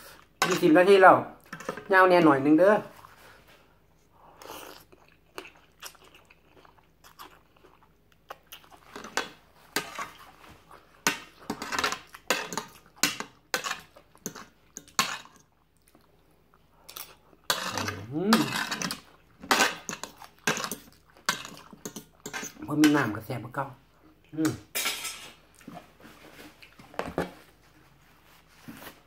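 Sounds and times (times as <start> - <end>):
person chewing and crunching food: 3.0 - 22.7.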